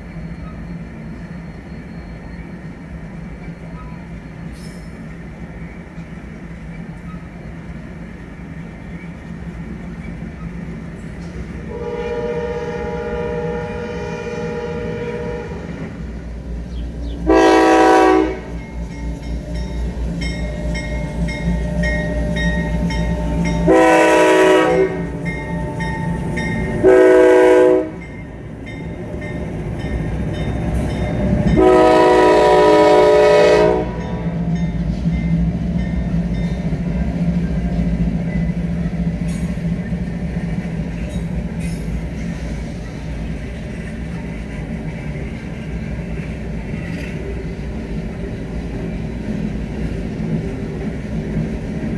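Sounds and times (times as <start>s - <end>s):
locomotive engine rumble: 0.0s - 51.9s
train air horn blasts: 11.6s - 16.0s, 17.2s - 19.5s, 20.5s - 28.1s, 31.4s - 34.3s.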